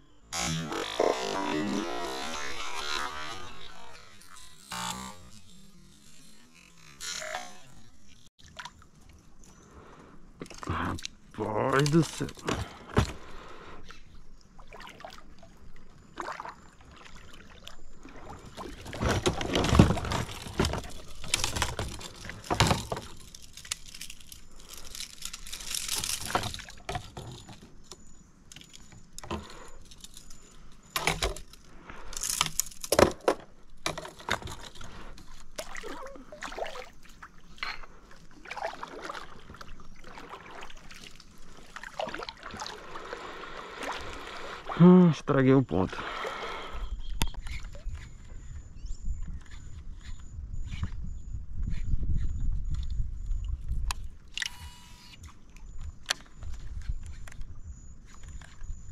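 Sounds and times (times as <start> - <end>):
water splashing and dripping: 14.5 - 22.4, 35.6 - 37.4, 38.2 - 44.8.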